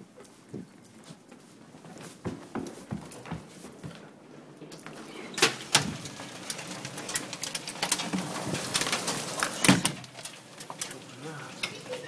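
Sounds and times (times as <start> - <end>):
hailstones striking: 5.0 - 12.0.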